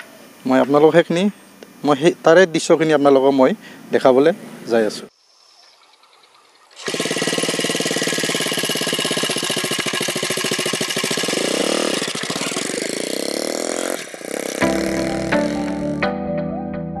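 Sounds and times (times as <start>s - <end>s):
small motorcycle engine running: 5.4s - 15.9s
music: 14.6s - 17.0s.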